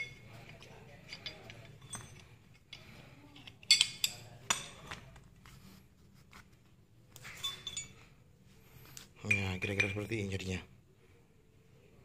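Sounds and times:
metal gun parts clicking: 0.0s - 4.7s.

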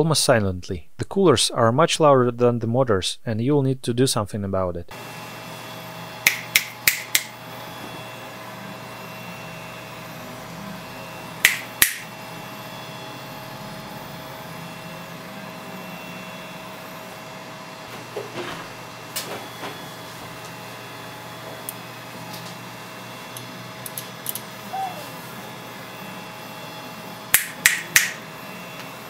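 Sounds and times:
cooling fans humming: 0.0s - 29.0s
sharp clicks: 6.3s - 7.3s, 11.4s - 12.0s, 27.4s - 28.2s.

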